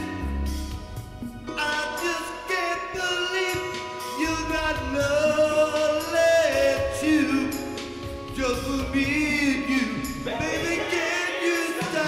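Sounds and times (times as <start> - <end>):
recorded backing track: 0.0 - 12.0
man singing into microphone: 1.5 - 12.0.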